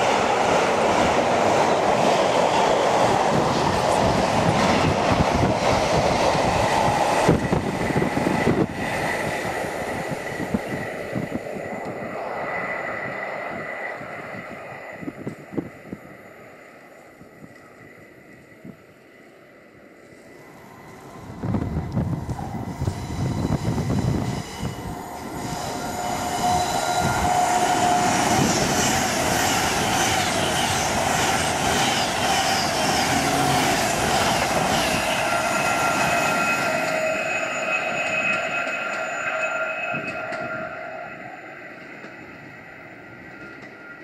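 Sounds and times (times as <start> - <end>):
electric train wheels rumbling: 0.0 - 44.0
train whining tones: 0.0 - 44.0.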